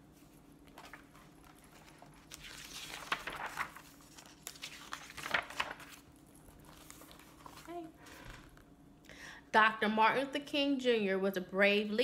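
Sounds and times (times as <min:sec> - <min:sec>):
book pages turning: 0:00.1 - 0:08.7.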